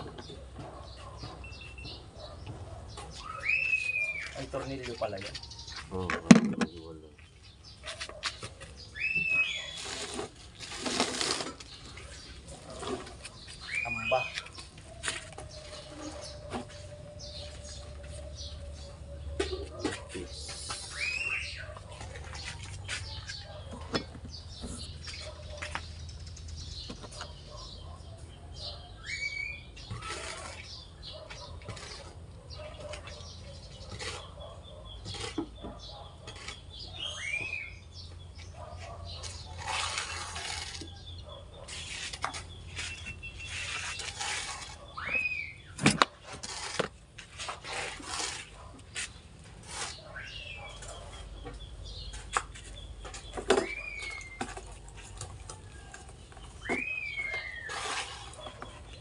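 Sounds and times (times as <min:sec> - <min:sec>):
bird calls: 0:00.0 - 0:46.8, 0:47.4 - 0:59.0
shovel scraping sand: 0:09.0 - 0:14.4, 0:29.8 - 0:30.8, 0:39.2 - 0:41.0, 0:41.6 - 0:50.6, 0:56.8 - 0:59.0.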